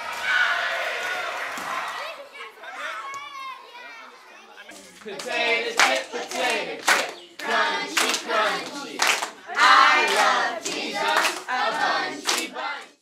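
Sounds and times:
young voices singing together: 4.8 - 13.0
hand claps: 5.0 - 12.9.

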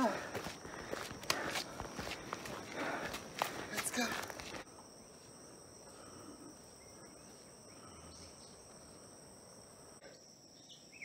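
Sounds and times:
insects droning: 0.0 - 11.0
outdoor background noise: 0.0 - 11.0
bird chirps: 10.1 - 11.0.

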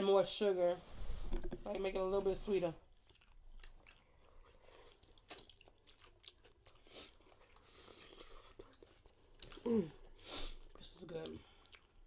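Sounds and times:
person chewing with lip smacks: 2.9 - 12.0.

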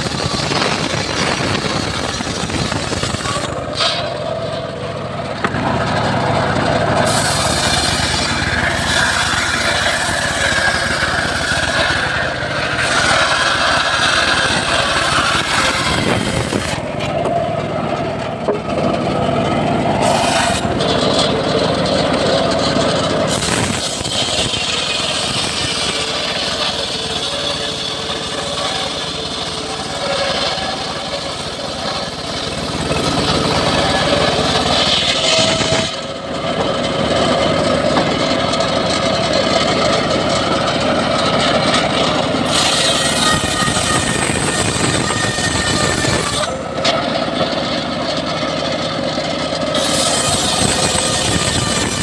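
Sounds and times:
circular saw ripping log: 0.0 - 17.5, 19.9 - 52.0.

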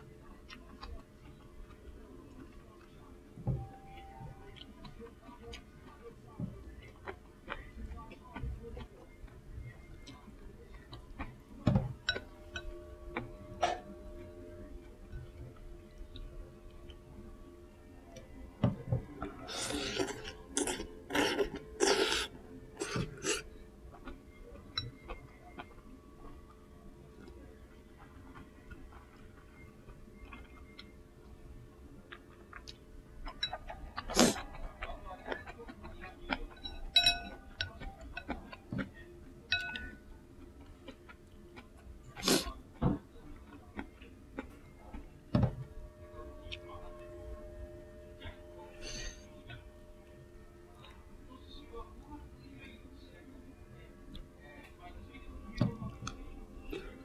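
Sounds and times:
ringing clink: 36.6 - 37.4.

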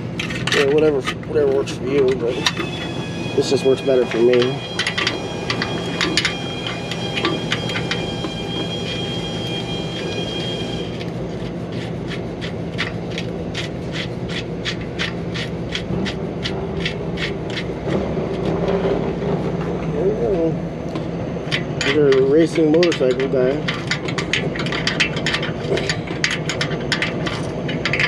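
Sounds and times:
steady hum: 0.0 - 28.0
thin high whine: 2.1 - 11.2.

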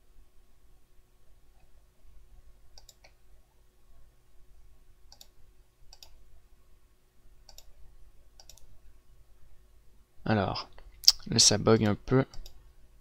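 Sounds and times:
faint low hum: 0.0 - 13.0
computer mouse clicking: 2.7 - 3.2, 5.1 - 6.2, 7.5 - 7.8, 8.4 - 8.7, 11.8 - 12.6.

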